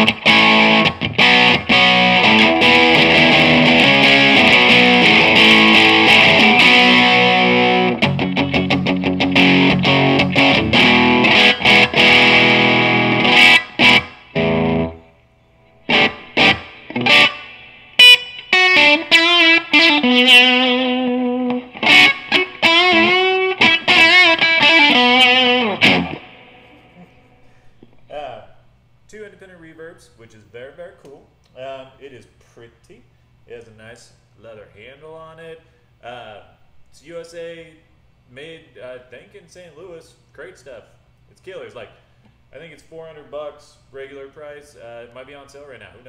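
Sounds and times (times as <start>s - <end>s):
distorted electric guitar: 0.0s - 27.3s.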